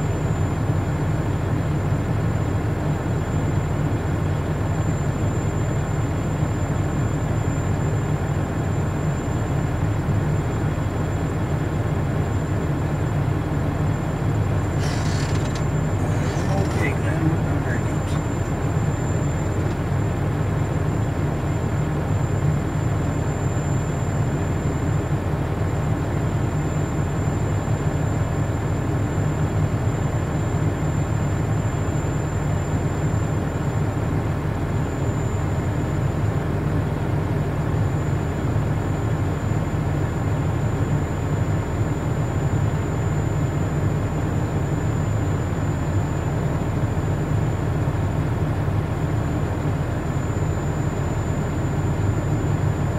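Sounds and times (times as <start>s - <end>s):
truck engine idling: 11.3s - 22.1s.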